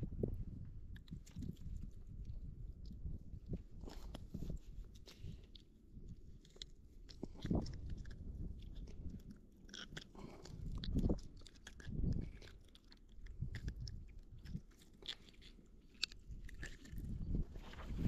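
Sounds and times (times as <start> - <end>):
dull low thumps: 0.0 - 4.6
small clicks and rustles: 0.6 - 18.0.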